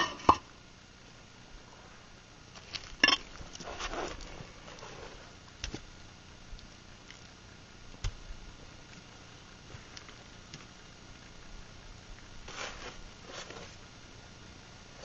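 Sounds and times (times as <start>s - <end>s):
scraping shuffle: 3.4s - 5.4s, 12.4s - 13.9s.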